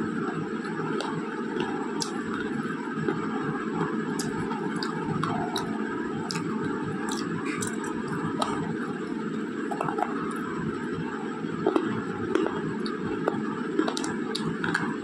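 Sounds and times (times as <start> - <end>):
steady background noise: 0.0 - 15.0
pencil being chewed crunching: 0.6 - 3.2, 4.1 - 8.8, 11.6 - 15.0.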